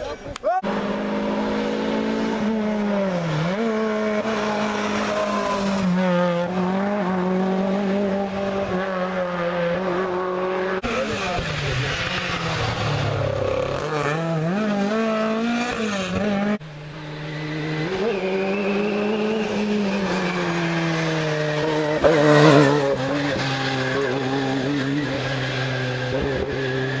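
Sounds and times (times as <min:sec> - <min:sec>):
rally car engine revving: 0:00.6 - 0:27.0
rally car passing by: 0:00.6 - 0:27.0.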